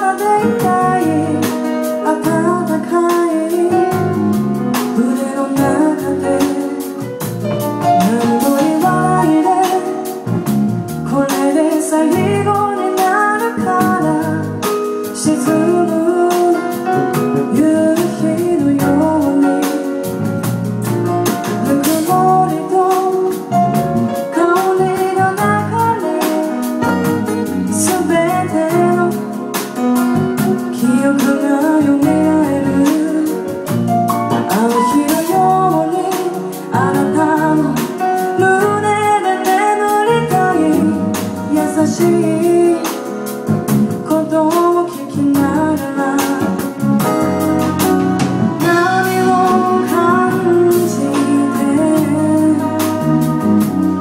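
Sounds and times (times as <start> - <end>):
woman singing: 0.0 - 47.8, 48.6 - 54.0
drums: 0.0 - 54.0
keyboard: 0.0 - 54.0.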